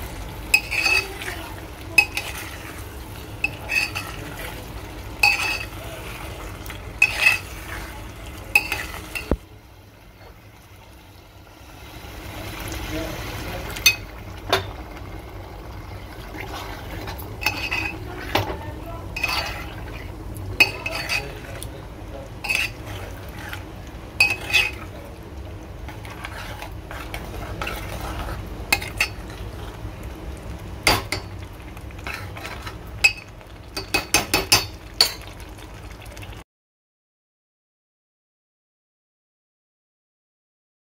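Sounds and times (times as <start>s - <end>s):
metal spoon stirring in pot: 0.4s - 9.4s, 13.7s - 15.1s, 16.1s - 21.7s, 22.4s - 25.0s, 25.8s - 29.8s, 30.8s - 35.3s
spoon clinking against pot: 0.5s - 1.1s, 5.2s - 5.7s, 8.6s - 9.4s, 24.2s - 24.8s, 33.0s - 35.2s.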